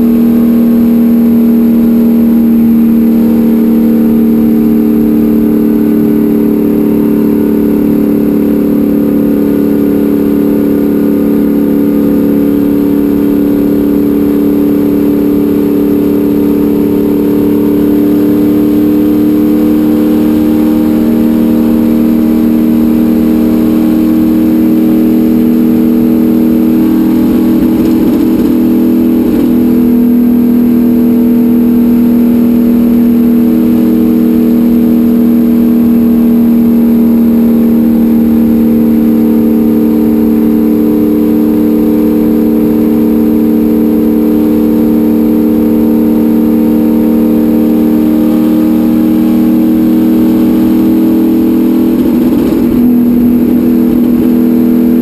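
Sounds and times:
racecar engine at high revs: 0.0s - 55.0s.

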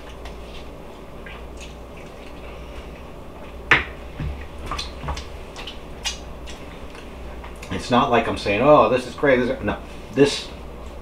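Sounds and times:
man chewing: 0.0s - 7.7s
wet mouth clicks and smacks: 1.2s - 2.4s, 4.7s - 7.7s.

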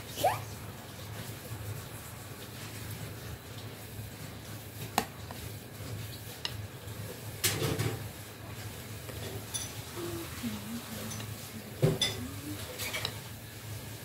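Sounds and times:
spoon clinking on glass bowl: 11.1s - 13.2s.

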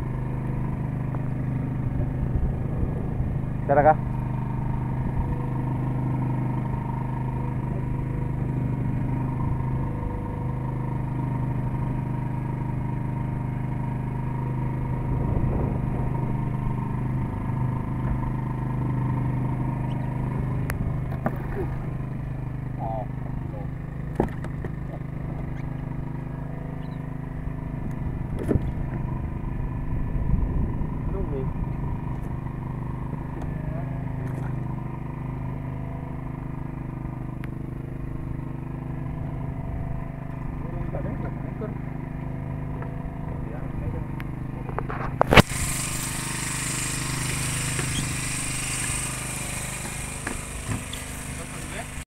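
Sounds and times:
boat engine running: 0.0s - 52.0s
steady hiss: 45.4s - 52.0s.

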